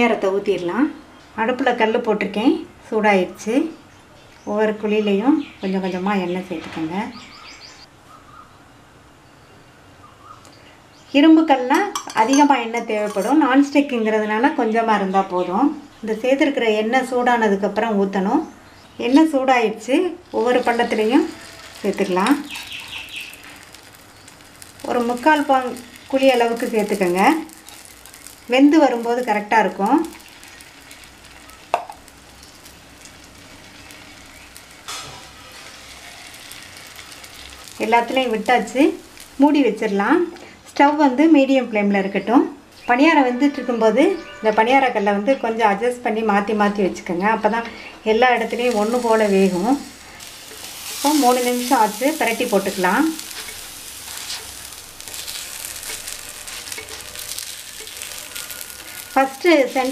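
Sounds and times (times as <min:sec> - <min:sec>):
hot oil sizzling: 0:19.7 - 0:40.6, 0:47.8 - 0:59.9.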